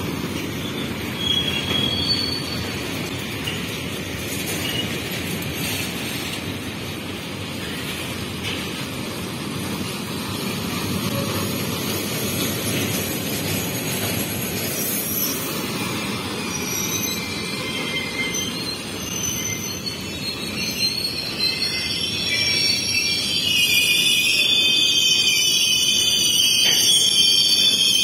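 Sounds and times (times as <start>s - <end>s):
wheels rumbling on track: 0.0s - 21.5s
high wheel squealing: 0.1s - 3.1s, 10.9s - 28.0s.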